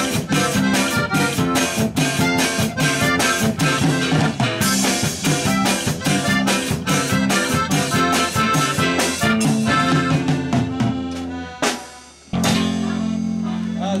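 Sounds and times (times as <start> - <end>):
band with accordion playing: 0.0 - 14.0
sharp drum hit: 12.3 - 13.0.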